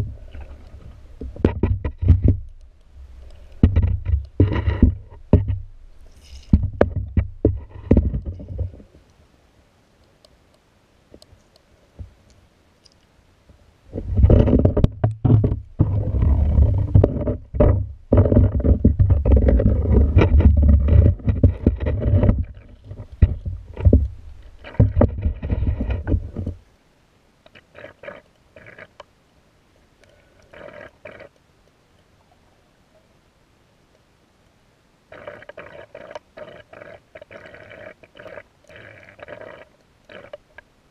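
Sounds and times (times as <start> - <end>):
muffled underwater rumble: 0.0 - 9.0, 13.9 - 26.6
faint rustles: 0.0 - 9.3.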